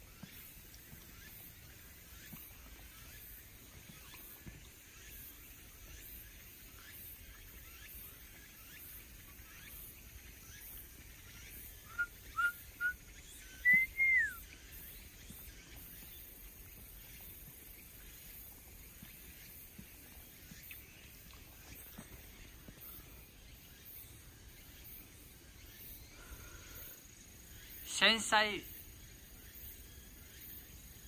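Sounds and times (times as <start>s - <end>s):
faint outdoor background: 0.0s - 31.0s
bird whistling: 11.8s - 14.4s.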